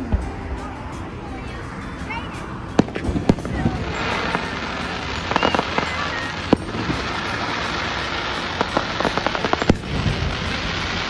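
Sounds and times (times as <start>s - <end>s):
crackling firework pops: 2.8s - 11.0s
firework shells bursting: 2.8s - 11.0s.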